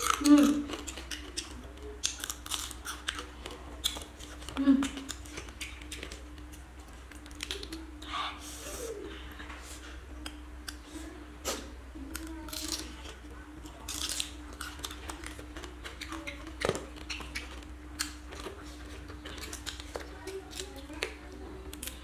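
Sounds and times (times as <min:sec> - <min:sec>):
crab shells cracking: 0:00.0 - 0:07.8, 0:13.9 - 0:18.5
chewing and mouth sounds: 0:00.0 - 0:22.0
steady hum: 0:00.0 - 0:22.0.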